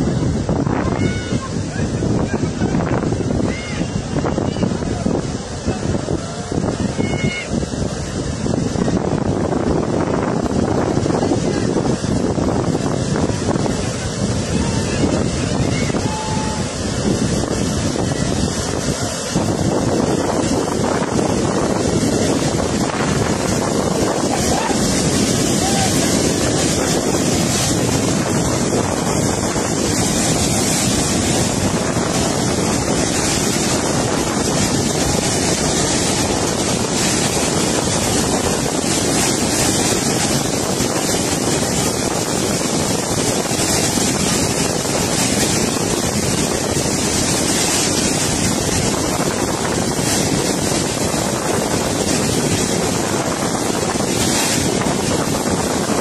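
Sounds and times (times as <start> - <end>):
floodwater rushing: 0.0 - 56.0
wind on microphone: 0.0 - 56.0.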